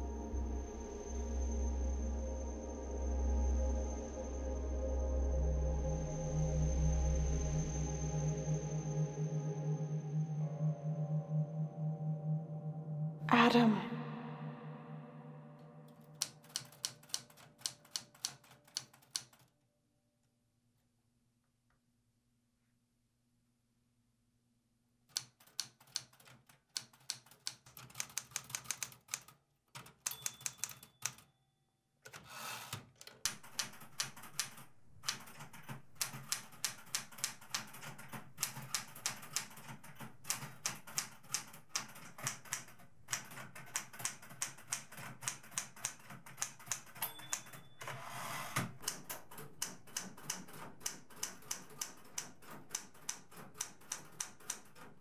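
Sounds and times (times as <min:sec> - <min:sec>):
typewriter keys clacking: 0:15.9 - 0:19.5, 0:25.1 - 0:31.3, 0:32.1 - 0:48.0, 0:48.6 - 0:55.0
typewriter bell ring: 0:30.0 - 0:31.3, 0:46.6 - 0:48.5.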